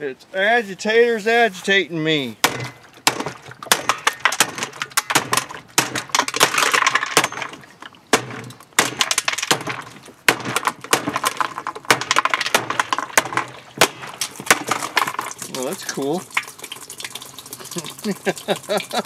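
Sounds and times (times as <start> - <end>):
plastic cracking: 2.4 - 16.5.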